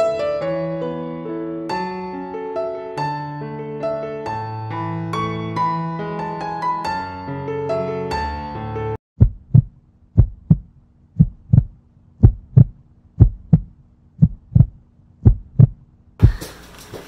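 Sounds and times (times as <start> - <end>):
piano music: 0.0 - 9.0
heartbeat thumps: 9.2 - 17.0.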